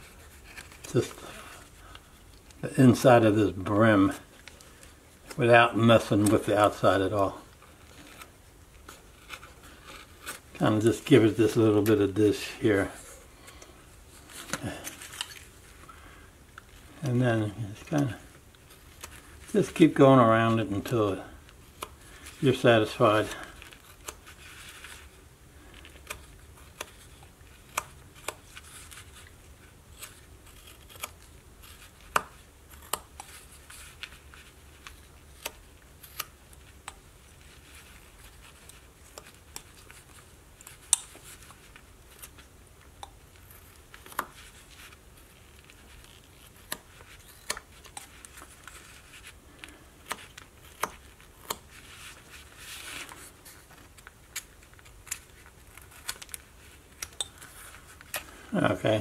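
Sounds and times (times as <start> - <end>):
carving blade cutting wood: 30.0 - 33.5.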